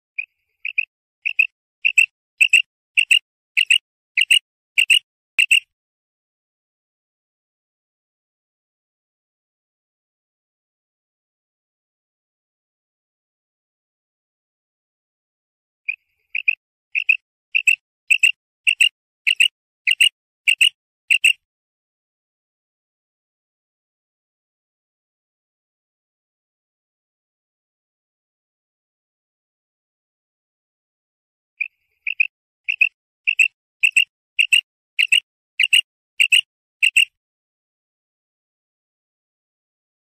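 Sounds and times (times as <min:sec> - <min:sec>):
quail calling: 0:00.2 - 0:05.6, 0:15.9 - 0:21.4, 0:31.6 - 0:37.1.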